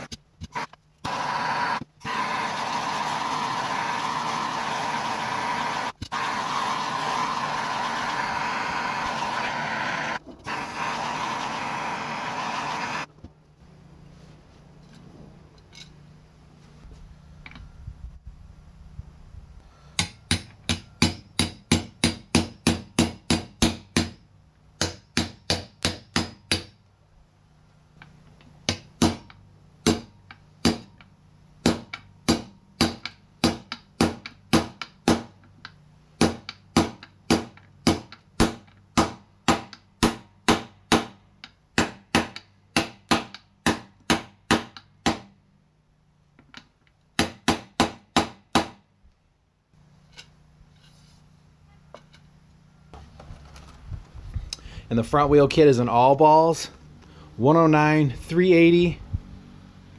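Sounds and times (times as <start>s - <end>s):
hammer tapping metal: 20.0s - 24.2s, 24.8s - 26.8s.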